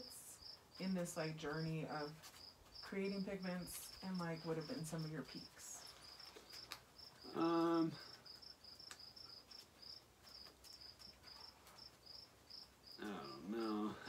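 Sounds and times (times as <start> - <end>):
cricket chirping: 0.0 - 0.9, 1.5 - 14.0
person humming: 7.3 - 8.1, 13.0 - 14.0.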